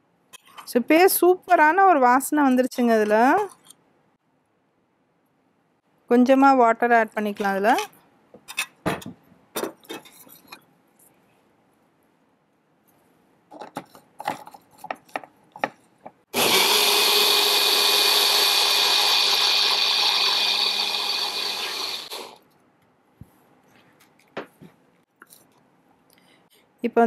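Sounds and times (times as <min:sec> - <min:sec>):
mixer grinder motor whirring: 0:16.4 - 0:22.4.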